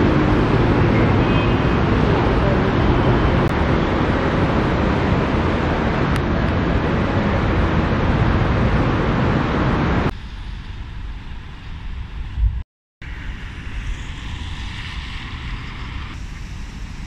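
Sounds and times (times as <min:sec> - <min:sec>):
traffic: 0:00.0 - 0:17.0
wind rumbling on microphone: 0:00.0 - 0:17.0
tyres hissing on wet road: 0:13.0 - 0:17.0.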